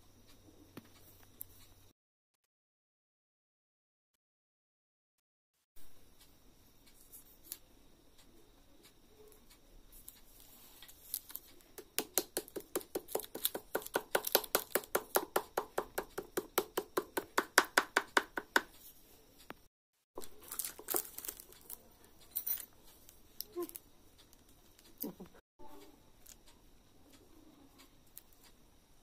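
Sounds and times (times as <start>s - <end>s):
wooden spatula tapping clay: 11.7s - 18.8s.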